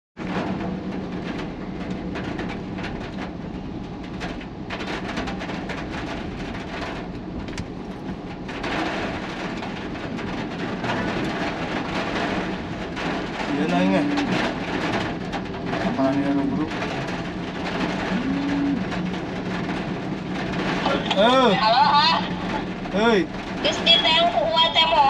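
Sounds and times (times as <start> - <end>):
low traffic rumble: 0.2 - 25.0
rain rushing: 0.2 - 25.0
raindrops tapping: 0.2 - 25.0
tyre noise: 18.0 - 19.1.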